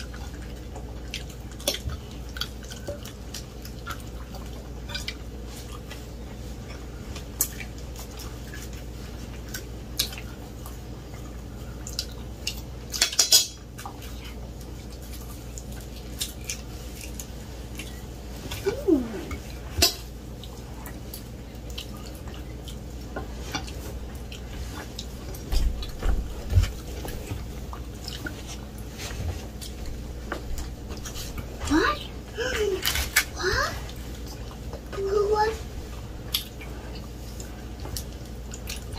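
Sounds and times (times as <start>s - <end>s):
forks clinking on plates: 12.9s - 13.6s.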